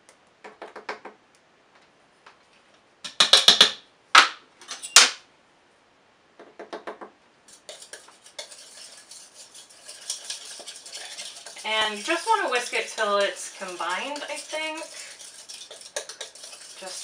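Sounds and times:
whisk beating batter: 0:07.5 - 0:17.0
spoon knocking bowl rim: 0:10.0 - 0:17.0.

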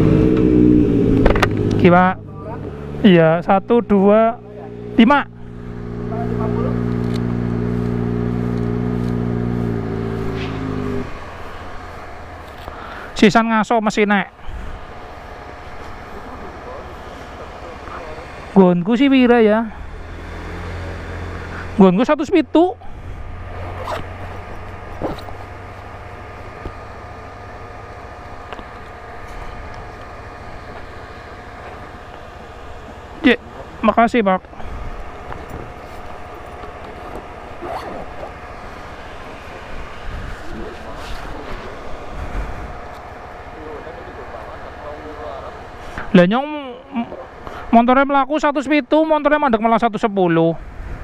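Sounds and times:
motorcycle engine idling: 0:00.0 - 0:20.1, 0:20.9 - 0:46.2
low background rumble: 0:00.0 - 0:20.2.

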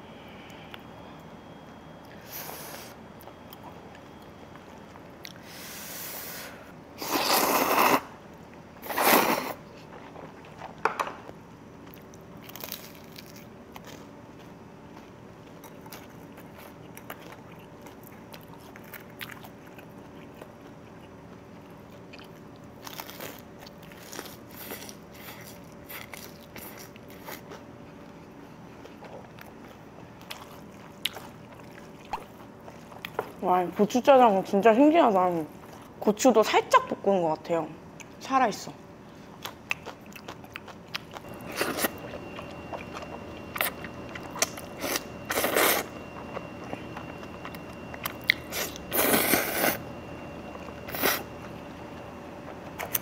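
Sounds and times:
person chewing: 0:11.8 - 0:33.4, 0:39.3 - 0:49.8, 0:50.5 - 0:51.6, 0:52.4 - 0:53.0.

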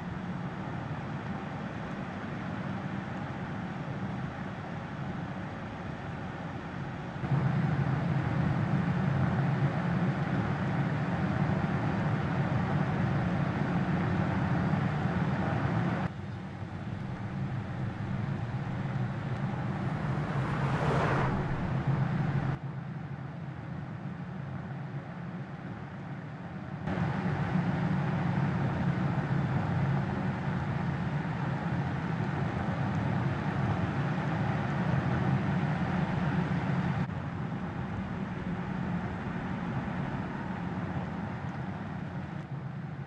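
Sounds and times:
engine and road noise hum: 0:00.0 - 0:43.0
brief whoosh: 0:16.8 - 0:22.6.

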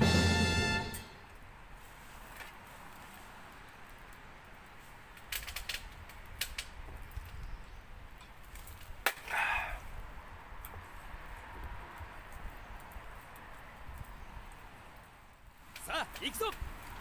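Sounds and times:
wood fire crackling: 0:00.0 - 0:17.0
sharp snaps and pops: 0:03.6 - 0:07.4, 0:08.2 - 0:09.6.

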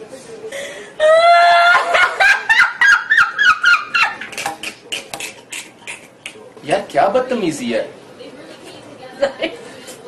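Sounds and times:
woman laughing loudly: 0:01.0 - 0:04.4.

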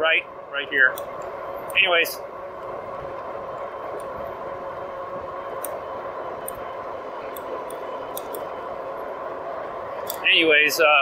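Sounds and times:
electric bike motor whine: 0:00.0 - 0:11.0
light ticks: 0:10.0 - 0:10.2.

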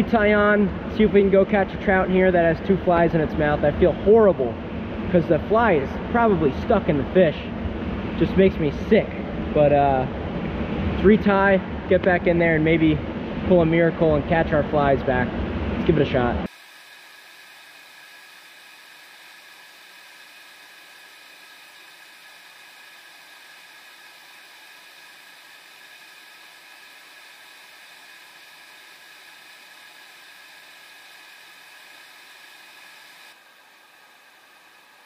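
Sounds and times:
steady hiss: 0:16.0 - 0:35.0.

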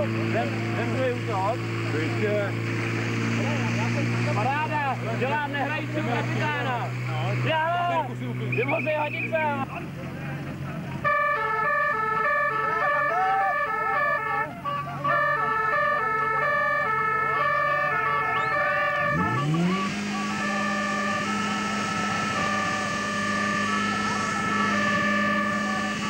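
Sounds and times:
fire pump engine revving: 0:00.0 - 0:26.0
two-tone siren: 0:04.0 - 0:08.0, 0:11.0 - 0:26.0.

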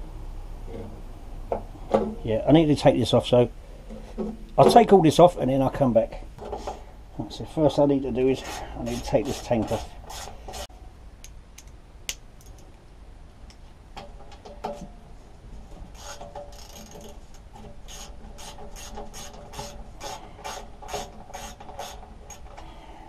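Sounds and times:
tool handling clicks: 0:11.2 - 0:12.8
hand ratchet clicking: 0:16.0 - 0:22.6.

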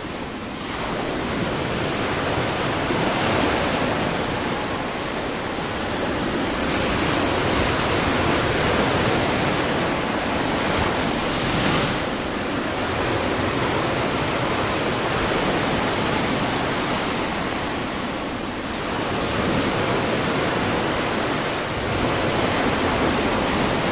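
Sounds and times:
sea surf rushing: 0:00.0 - 0:23.9.

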